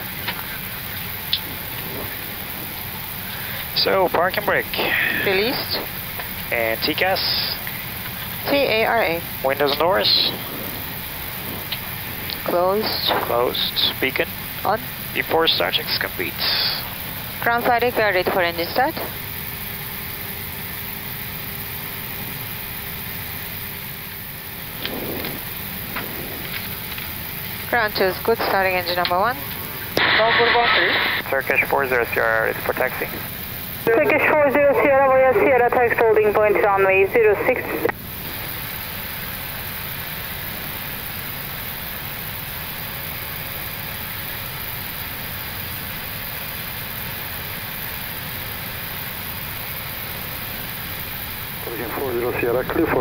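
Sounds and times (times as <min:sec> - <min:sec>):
steady rushing noise: 0:00.0 - 0:19.2, 0:23.4 - 0:33.9
cockpit cabin hiss and rumble: 0:00.0 - 0:53.0.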